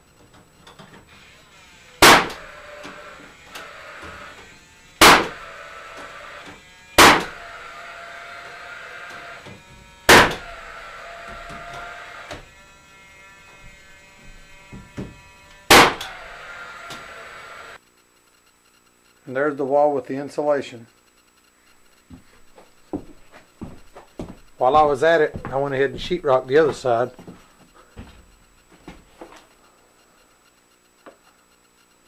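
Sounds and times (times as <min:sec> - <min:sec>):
nailer fan whirring: 0:00.0 - 0:17.8, 0:21.6 - 0:29.7
nail gun firing: 0:02.0 - 0:04.2, 0:05.0 - 0:07.4, 0:10.1 - 0:10.6, 0:15.7 - 0:16.2.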